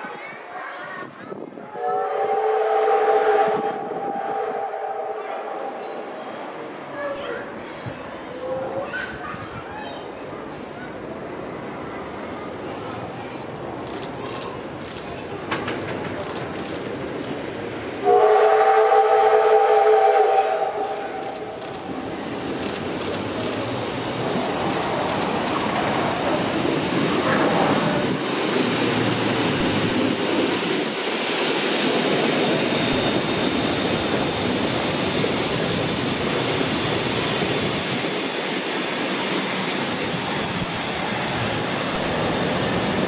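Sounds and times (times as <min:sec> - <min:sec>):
train wheels rumbling on rails: 0:10.5 - 0:43.0.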